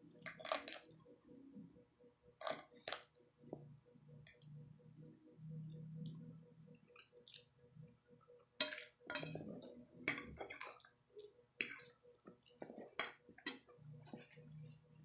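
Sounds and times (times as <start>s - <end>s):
fork clinking on ceramic plate: 8.6s - 9.5s.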